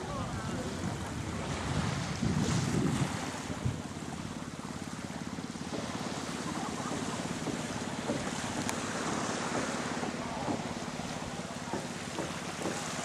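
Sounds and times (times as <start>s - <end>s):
wind on microphone: 0.0s - 4.2s
small waves washing on sand: 0.0s - 13.0s.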